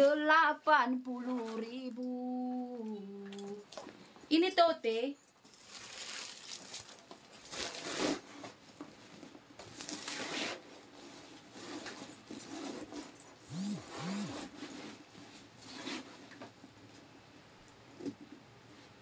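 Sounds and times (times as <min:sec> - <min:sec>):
fabric bag rustling: 0:05.5 - 0:08.2
short low hums: 0:13.5 - 0:14.5.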